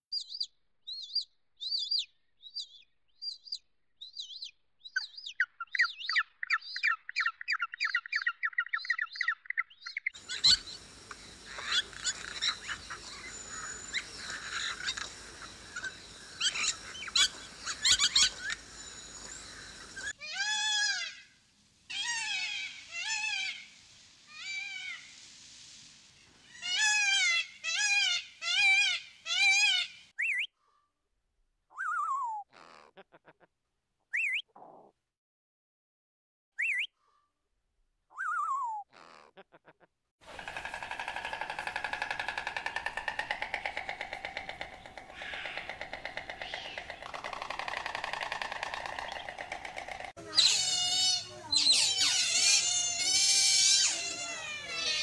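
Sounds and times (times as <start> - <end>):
high bird chirps: 0.1 - 20.2, 36.6 - 36.9, 41.3 - 55.0
arched pitched bird calls: 5.0 - 21.3, 40.3 - 55.0
chorus of many birds calling: 7.8 - 21.2, 40.3 - 55.0
rapid bird trill: 10.2 - 21.1, 40.3 - 55.0.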